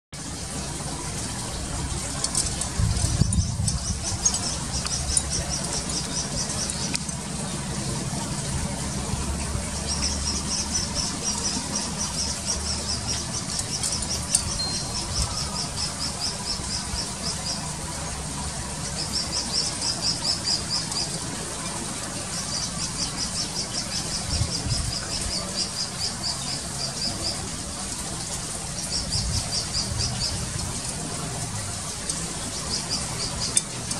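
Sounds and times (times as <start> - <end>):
fledgling bird begging chirps: 9.7 - 17.4.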